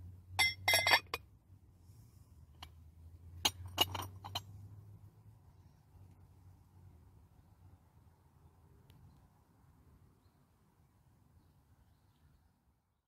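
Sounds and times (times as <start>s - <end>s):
glass clinking on glass: 0.4s - 1.2s.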